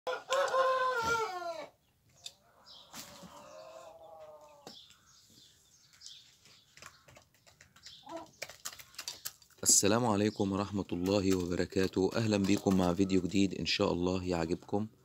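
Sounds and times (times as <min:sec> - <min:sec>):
chickens calling: 0:00.1 - 0:15.0
hen pecking grain from bowl: 0:05.9 - 0:09.8, 0:10.6 - 0:13.5.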